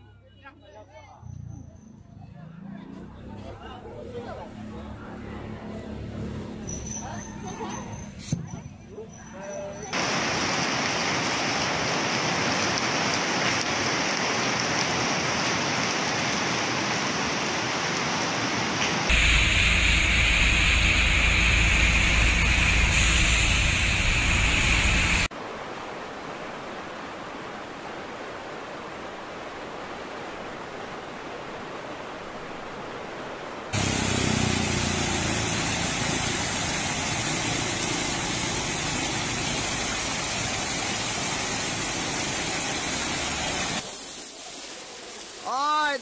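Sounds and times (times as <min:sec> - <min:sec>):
water cascading over wall: 0:09.8 - 0:46.0
floodwater rushing: 0:09.9 - 0:46.0.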